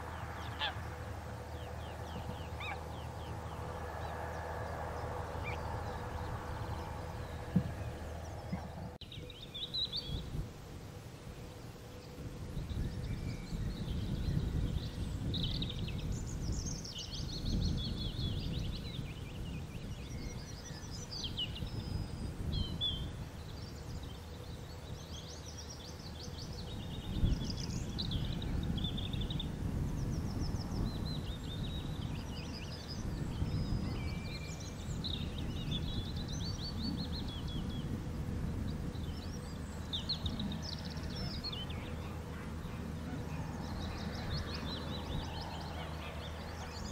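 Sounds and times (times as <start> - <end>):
low steady rumble: 0.0 - 46.9
songbirds chirping and trilling: 0.0 - 46.9.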